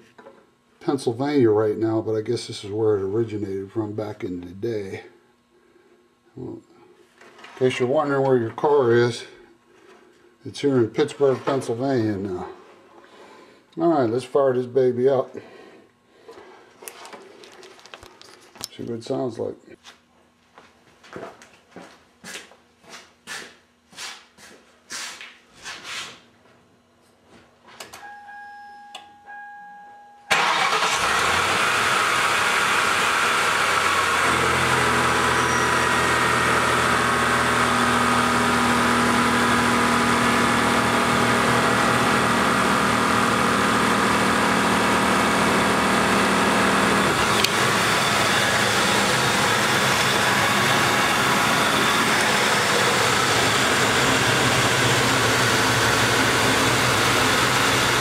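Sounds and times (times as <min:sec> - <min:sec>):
brief steady tone: 0:28.0 - 0:30.3
car engine starting and running: 0:30.3 - 0:58.0.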